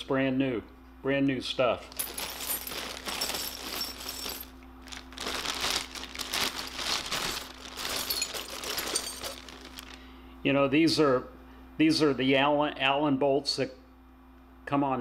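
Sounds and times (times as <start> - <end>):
metal nuts and bolts clinking: 1.9 - 5.5, 6.4 - 10.0
plastic bag crinkling: 1.9 - 10.0.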